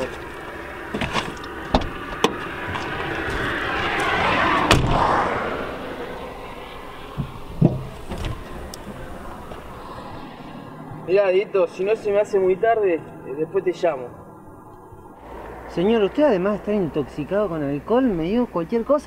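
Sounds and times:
car door clicks and clunks: 0.9s - 5.0s
passing vehicle hiss: 2.0s - 18.5s.

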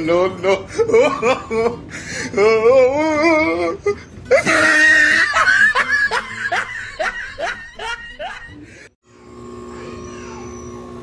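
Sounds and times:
person laughing hard: 0.6s - 8.8s.

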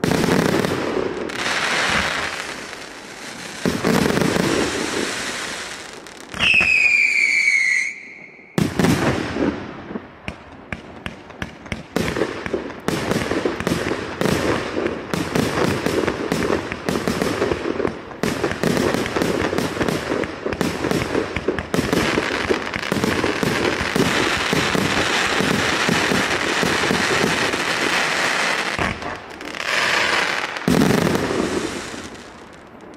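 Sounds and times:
rapid firework shots and crackling: 0.0s - 6.7s, 8.6s - 32.9s
firework whistle falling in pitch: 6.3s - 8.6s.

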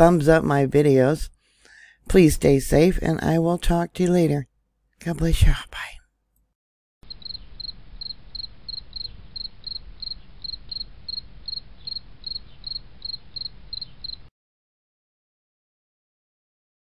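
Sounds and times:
insect chirping: 7.0s - 14.3s.

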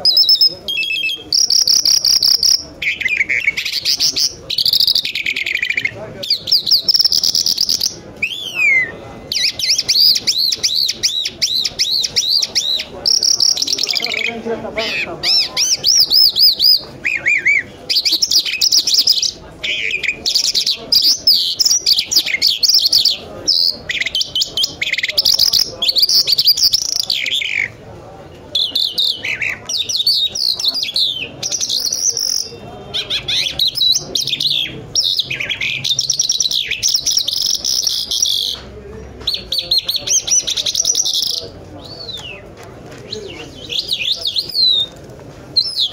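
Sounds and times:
lark singing chirps and trills: 28.6s - 38.6s.

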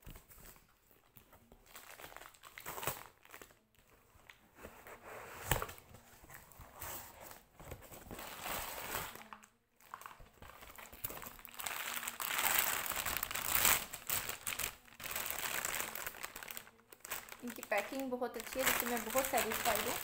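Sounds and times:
plastic bag crinkling: 0.2s - 3.6s, 8.1s - 20.0s.

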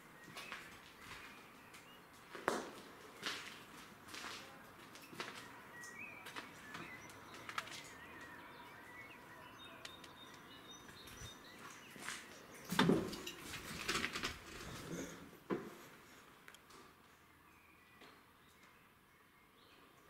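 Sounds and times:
footsteps crunching over rubble: 0.0s - 8.7s, 10.3s - 15.0s.

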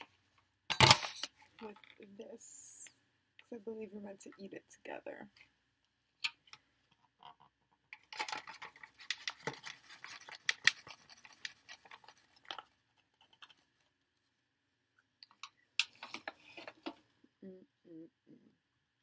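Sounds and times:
plastic container crinkling: 8.0s - 13.8s.

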